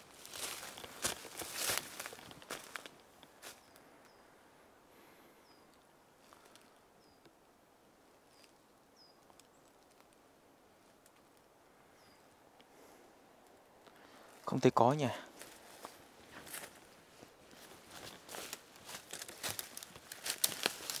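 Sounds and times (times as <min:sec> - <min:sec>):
twigs snapping in undergrowth: 0:00.1 - 0:03.6, 0:17.6 - 0:21.0
small bird calling: 0:05.3 - 0:05.7, 0:11.8 - 0:12.4.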